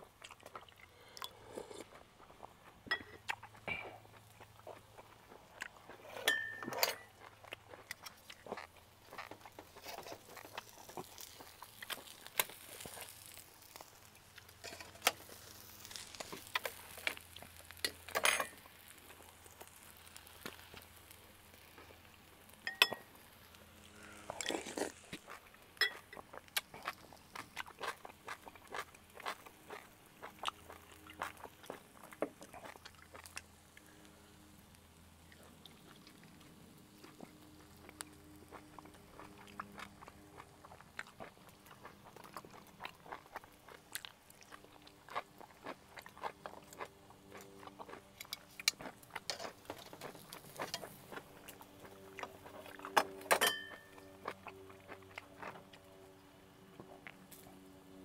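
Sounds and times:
eating by hand: 0:00.0 - 0:58.0
metal tongs and spoon clinking: 0:06.2 - 0:07.1, 0:14.6 - 0:15.1, 0:17.9 - 0:18.6, 0:22.7 - 0:23.0, 0:53.3 - 0:54.0.

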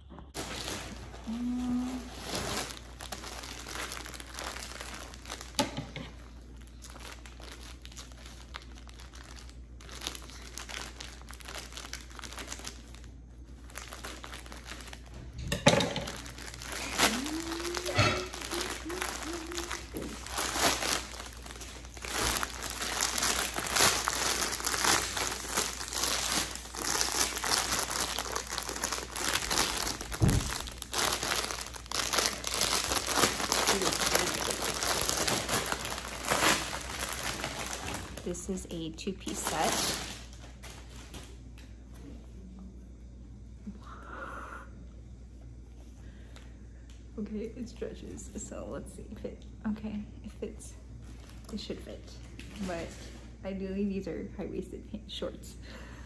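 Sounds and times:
plastic packaging crinkling: 0:00.3 - 0:41.7, 0:51.0 - 0:53.4.

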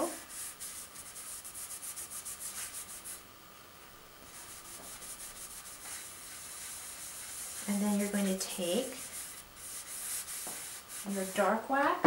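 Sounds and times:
cloth rag rubbing wax on wood: 0:00.0 - 0:03.2, 0:04.2 - 0:11.8.

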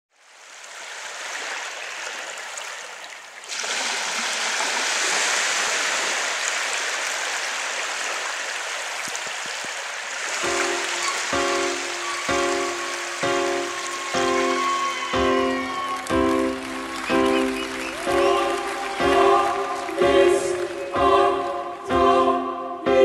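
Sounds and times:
waves washing on sandy shore: 0:00.2 - 0:20.9
music: 0:10.4 - 0:23.0.

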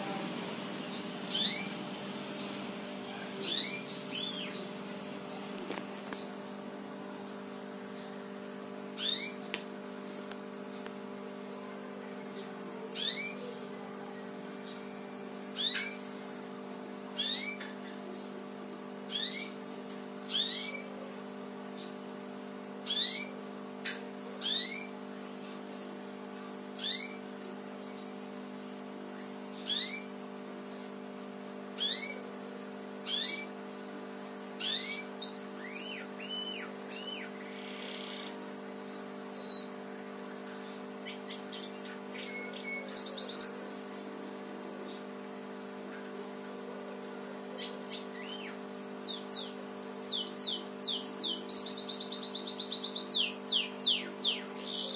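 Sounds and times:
canary cheeping: 0:41.0 - 0:43.6.

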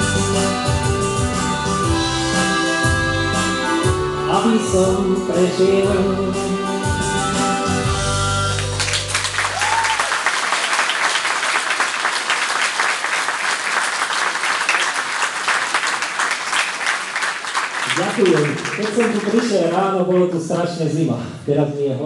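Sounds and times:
audience clapping: 0:08.5 - 0:20.4.

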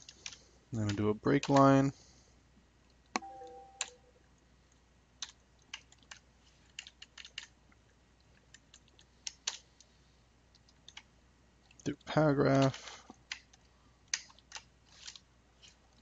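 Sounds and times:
keyboard keys clicking: 0:03.2 - 0:04.0, 0:05.2 - 0:07.5.

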